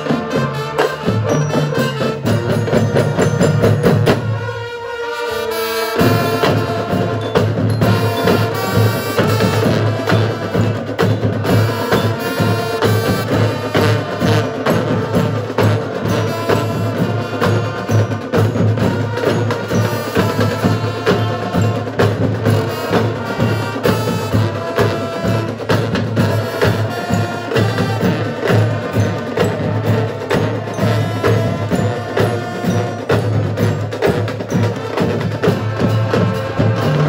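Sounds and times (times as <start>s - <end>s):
marching drumline: 0.0s - 37.0s
brass section sustained chords: 35.5s - 37.0s.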